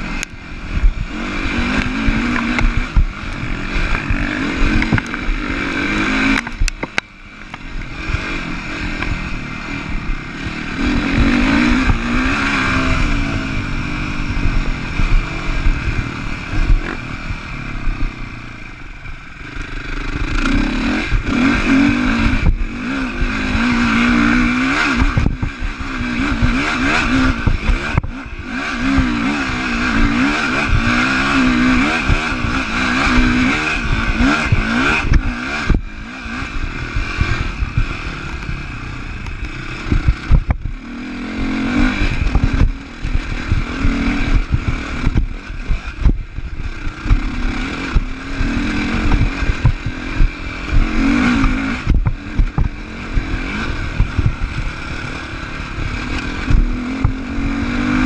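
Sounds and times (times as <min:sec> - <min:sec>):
motorcycle engine revving: 0:00.0 - 0:58.0
bike knocks and rattles: 0:49.1 - 0:52.8.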